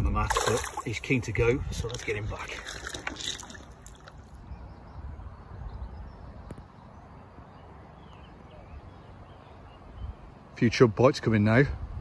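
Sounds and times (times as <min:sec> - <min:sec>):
wind rumble on microphone: 0:00.0 - 0:07.6, 0:11.5 - 0:12.0
faint bird chirps: 0:04.4 - 0:10.6.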